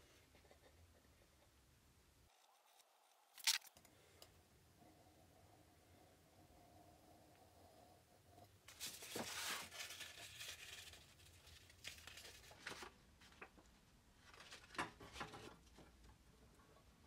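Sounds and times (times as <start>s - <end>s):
paper rustling and crinkling: 3.4s - 3.7s, 8.7s - 13.6s, 14.2s - 15.6s.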